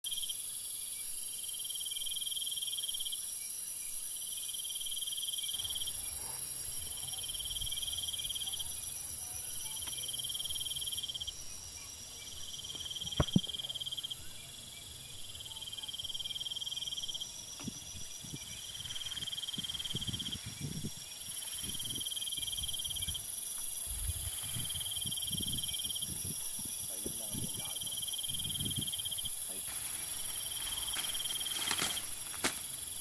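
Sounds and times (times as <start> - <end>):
insects trilling: 0.1 - 33.0
steady very high hiss: 0.1 - 33.0
grass rustling: 17.4 - 33.0.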